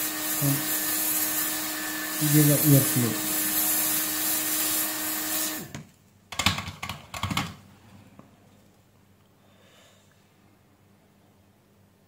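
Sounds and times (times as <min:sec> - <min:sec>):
hot air station hissing: 0:00.0 - 0:05.7.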